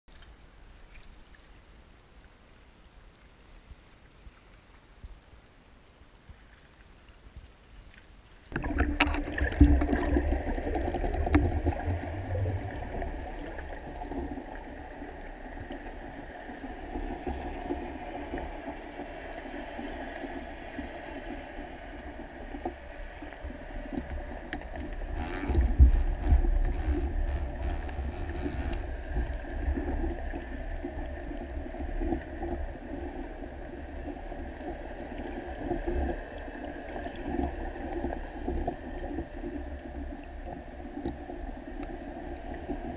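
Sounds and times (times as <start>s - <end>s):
faint clicks: 0.1s - 5.5s, 6.1s - 10.0s
muffled underwater rumble: 6.1s - 42.9s.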